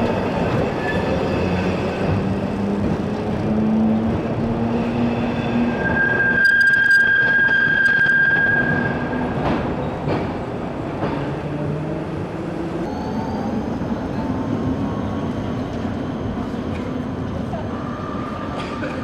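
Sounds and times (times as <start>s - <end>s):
tram rumbling on rails: 0.0s - 19.0s
tram wheels squealing: 4.8s - 9.9s.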